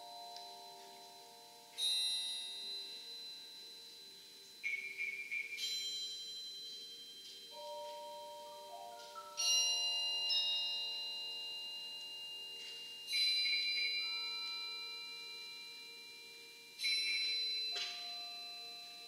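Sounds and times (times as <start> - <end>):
bell-like mallet percussion chords: 0.0 - 4.7, 5.5 - 19.0.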